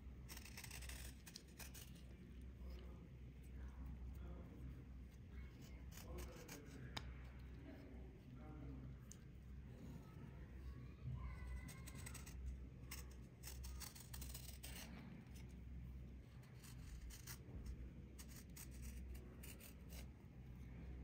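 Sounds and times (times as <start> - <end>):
low steady hum: 0.0 - 21.0
blade scraping dry crust: 0.3 - 2.1, 5.5 - 7.0, 11.6 - 15.5.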